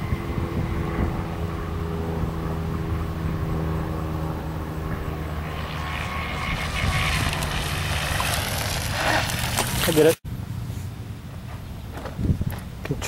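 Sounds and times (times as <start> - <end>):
model boat motor drone: 0.0 - 9.9.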